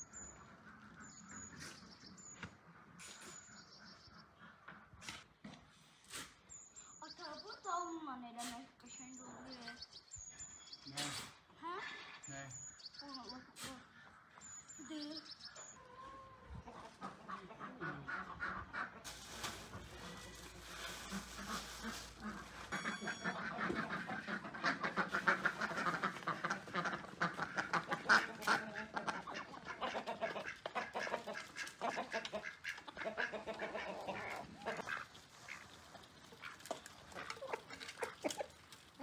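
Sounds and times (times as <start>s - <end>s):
ducks quacking: 0.2s - 5.4s, 15.4s - 39.0s.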